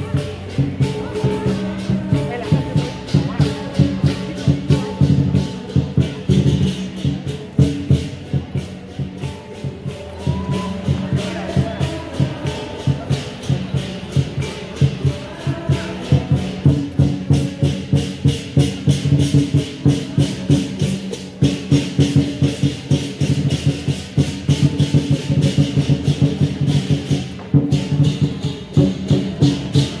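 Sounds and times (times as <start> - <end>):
big drum beating: 0.0 - 30.0
cymbals clashing: 0.0 - 30.0.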